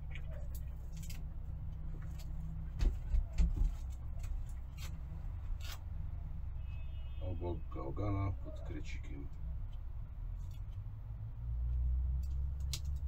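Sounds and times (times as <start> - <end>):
steady low hum: 0.0 - 13.0
light clicks and crackles: 11.6 - 13.0.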